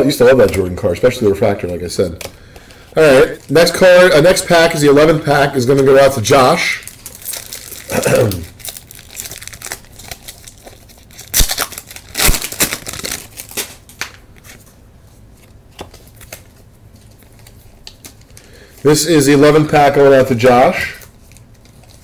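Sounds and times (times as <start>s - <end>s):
cards rustling: 0.3s - 22.0s
foil wrapper tearing and crinkling: 6.6s - 14.7s, 20.4s - 22.0s.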